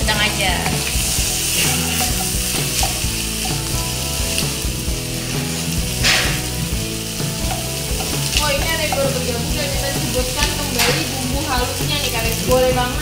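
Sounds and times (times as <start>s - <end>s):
chicken sizzling in a wok: 0.0s - 13.0s
wooden spatula scraping pan: 0.5s - 9.7s.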